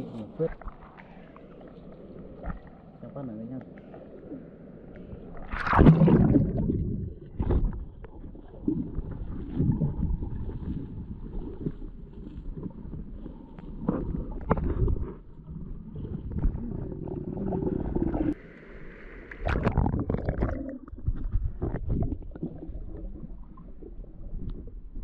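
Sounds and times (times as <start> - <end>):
stream water splashing: 5.3 - 7.8
loud splash: 5.4 - 6.9.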